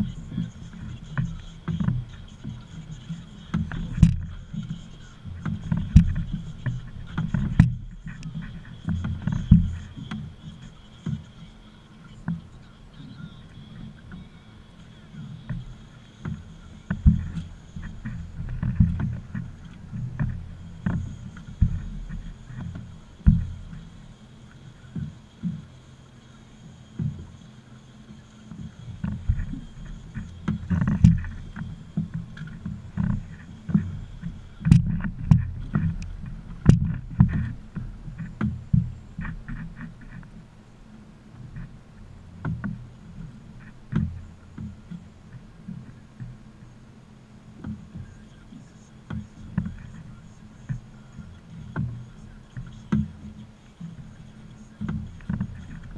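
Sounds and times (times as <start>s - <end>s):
steady low rumble: 0.0s - 55.9s
knocks against boat hull: 3.5s - 4.4s, 5.4s - 10.3s, 16.3s - 23.9s, 30.2s - 40.3s
low rumble: 16.6s - 24.0s, 29.2s - 46.6s.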